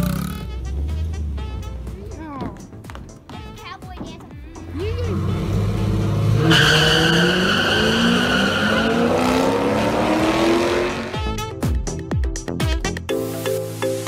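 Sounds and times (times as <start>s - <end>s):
race cars accelerating: 4.7s - 11.3s.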